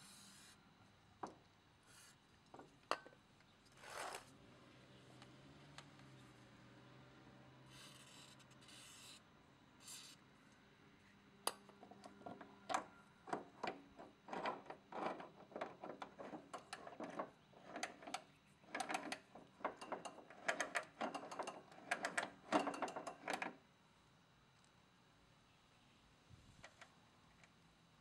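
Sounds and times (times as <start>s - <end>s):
plastic wheel clicks and knocks: 11.8s - 23.6s.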